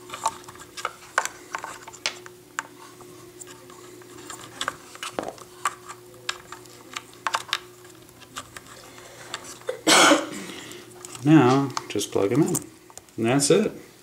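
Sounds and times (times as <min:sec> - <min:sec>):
hands handling wires and plastic: 0:00.0 - 0:09.8, 0:10.7 - 0:13.2
faint steady hum: 0:00.0 - 0:14.0.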